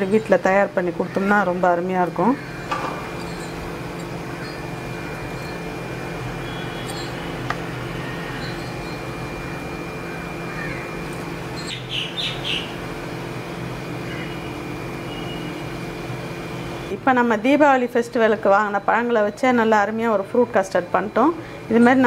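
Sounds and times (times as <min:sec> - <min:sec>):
steady low hum: 0:00.0 - 0:22.0
thin high whine: 0:02.2 - 0:17.0
bird chirping: 0:06.4 - 0:09.6, 0:11.5 - 0:12.8.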